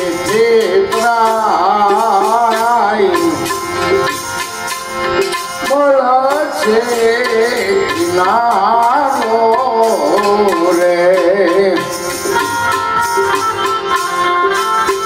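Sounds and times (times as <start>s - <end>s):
man singing devotional song: 0.0s - 3.6s, 5.6s - 12.1s
hand drum strokes: 0.0s - 15.0s
harmonium sustained tones: 0.0s - 15.0s.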